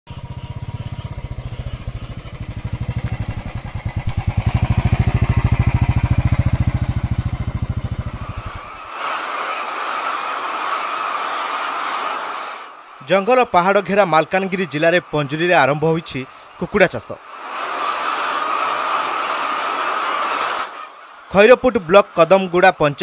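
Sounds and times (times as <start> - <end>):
motorcycle engine thumping: 0.1 - 8.5.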